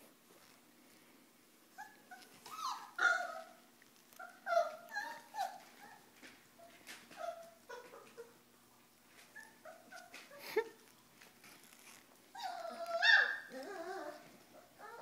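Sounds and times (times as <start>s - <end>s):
puppies yelping and whining: 1.7s - 8.4s, 9.3s - 10.5s, 11.9s - 15.0s.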